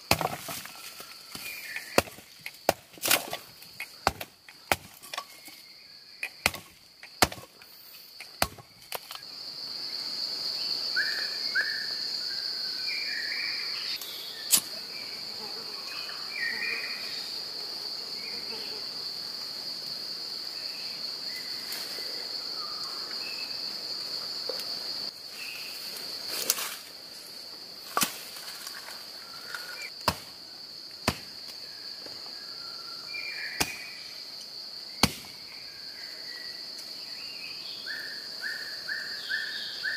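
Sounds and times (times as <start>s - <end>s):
blade chopping firewood: 0.0s - 5.6s, 6.2s - 9.2s, 30.0s - 30.3s, 31.0s - 31.6s, 35.0s - 35.4s
forest insects droning: 0.0s - 39.9s.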